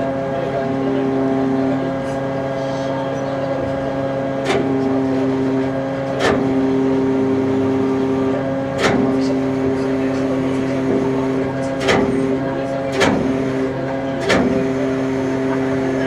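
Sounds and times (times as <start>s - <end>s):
ship machinery droning: 0.0s - 16.0s.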